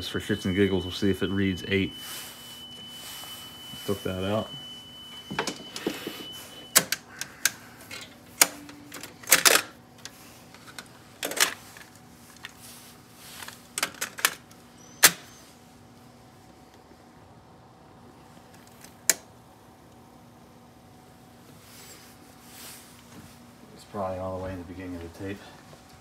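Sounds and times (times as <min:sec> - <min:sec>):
high test tone: 0:00.0 - 0:06.8.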